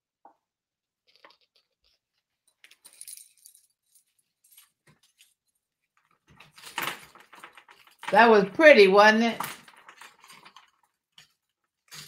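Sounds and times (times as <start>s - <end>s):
necklace clinking and jingling: 2.4s - 5.6s.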